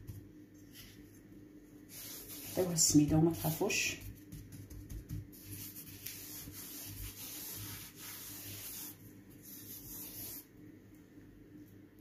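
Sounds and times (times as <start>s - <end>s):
gritty rubbing of dough in a dish: 1.9s - 10.5s.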